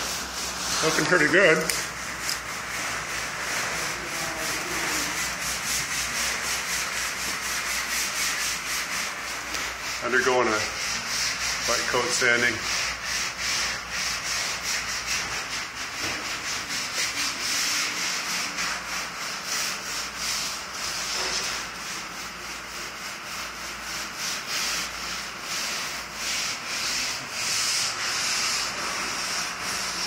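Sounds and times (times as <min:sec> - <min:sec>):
sandpaper rubbing on metal: 0:00.0 - 0:30.0.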